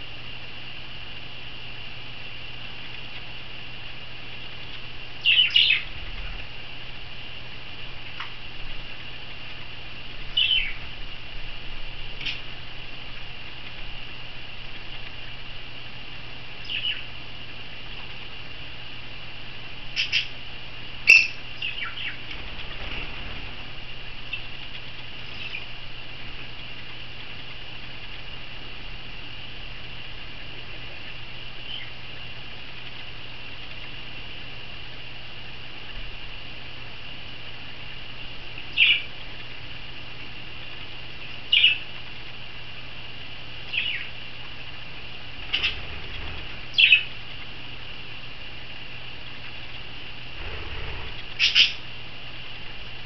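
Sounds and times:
parrot chirps: 5.2 - 5.9, 10.4 - 10.8, 20.0 - 20.3, 21.0 - 22.2, 51.4 - 51.8
budgerigars chirping: 5.2 - 6.0, 10.3 - 10.8, 16.6 - 17.1, 19.9 - 20.4, 21.1 - 23.6, 24.2 - 25.7, 38.8 - 39.1, 41.5 - 41.8, 43.7 - 44.1, 45.4 - 47.2, 50.4 - 51.8.

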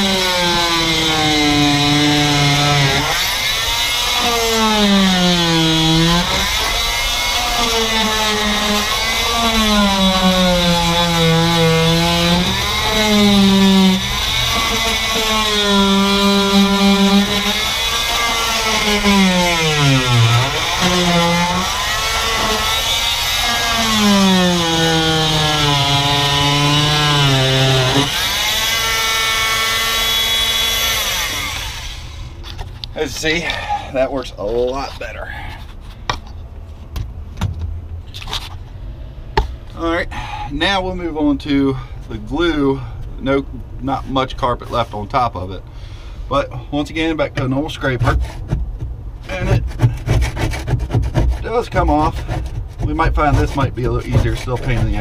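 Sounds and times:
oscillating multi-tool scraping carpet: 0.0 - 31.8, 49.3 - 55.0.

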